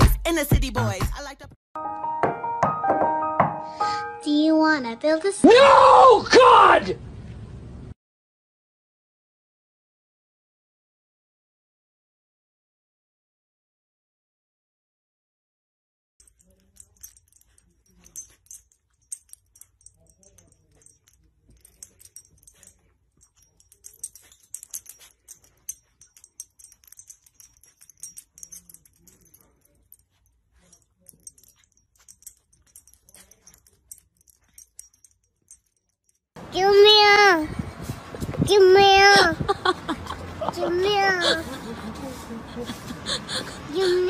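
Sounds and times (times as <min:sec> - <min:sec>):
dog collar tag jingling: 0:16.2 - 0:37.4, 0:38.1 - 0:44.0.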